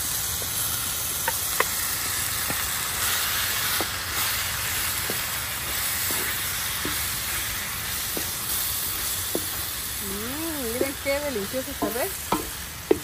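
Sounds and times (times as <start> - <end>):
food sizzling in a pan: 0.0 - 13.0
wooden spoon knocking: 10.7 - 13.0.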